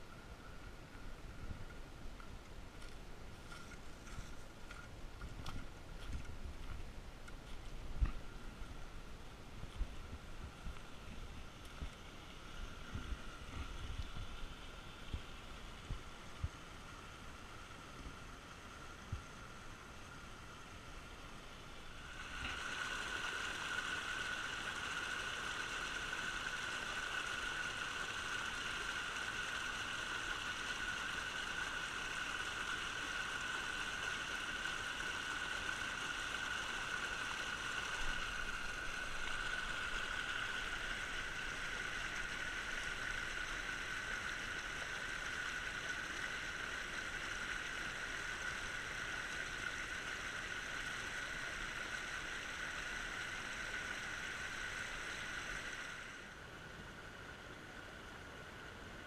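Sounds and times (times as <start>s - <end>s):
water rushing over rocks: 21.8s - 56.2s.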